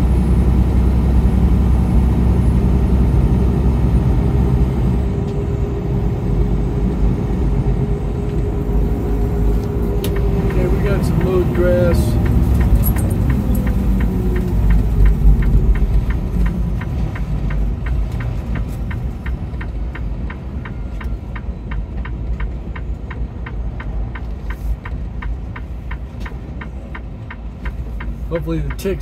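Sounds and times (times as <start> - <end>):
road and engine rumble: 0.0 - 29.0
hazard flasher ticking: 10.0 - 19.7.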